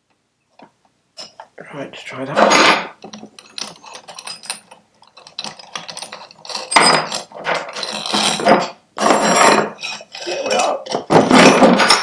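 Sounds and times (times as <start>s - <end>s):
metal clinks: 2.5s - 10.0s.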